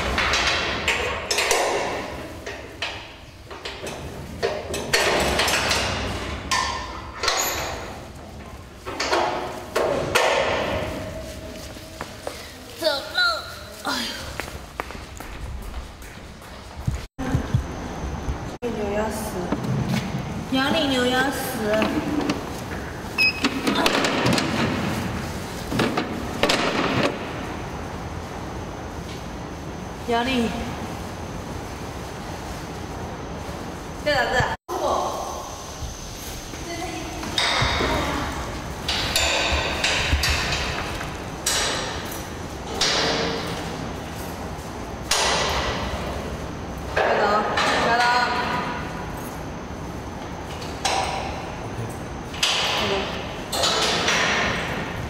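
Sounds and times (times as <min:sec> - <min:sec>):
noisy clatter: 0:37.1 - 0:46.3.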